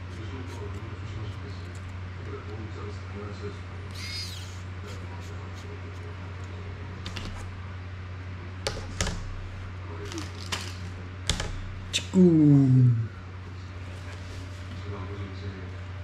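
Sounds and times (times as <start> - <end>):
steady low hum: 0.0 - 16.0
plastic clicks and knocks: 11.3 - 11.6.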